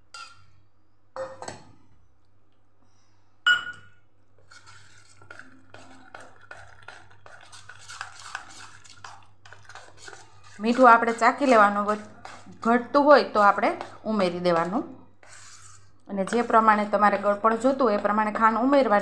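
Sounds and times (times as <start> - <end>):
spoon scraping bowl while stirring: 4.4 - 19.0.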